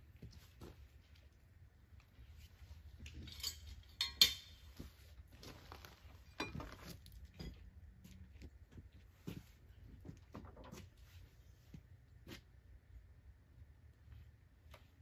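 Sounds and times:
metal hardware clinking and rattling: 0:03.0 - 0:04.7.

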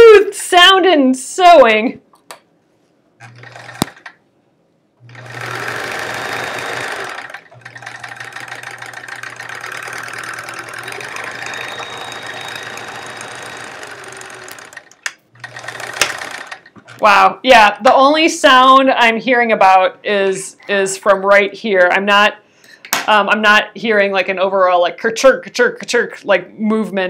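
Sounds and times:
sewing machine stitching: 0:03.2 - 0:04.2, 0:05.0 - 0:17.0.

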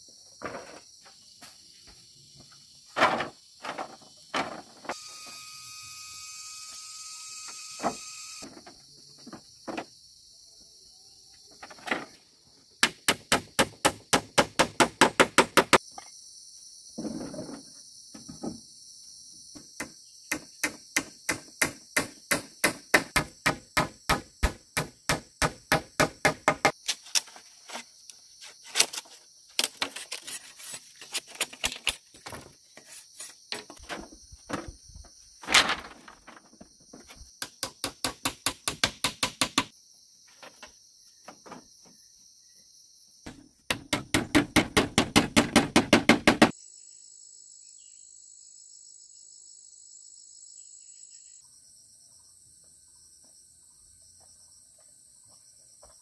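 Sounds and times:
insects buzzing and chirping: 0:00.0 - 0:56.0
tool striking bamboo: 0:19.8 - 0:27.2, 0:37.4 - 0:39.7, 0:43.3 - 0:46.5.

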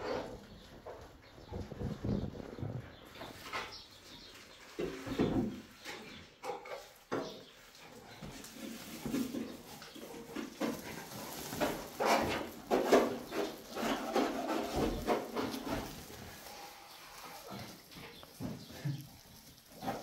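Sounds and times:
plastic sack rustling and scraping: 0:08.3 - 0:20.0.

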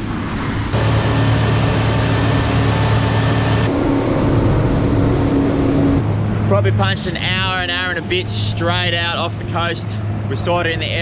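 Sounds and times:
motorboat engine drone: 0:00.7 - 0:06.1.

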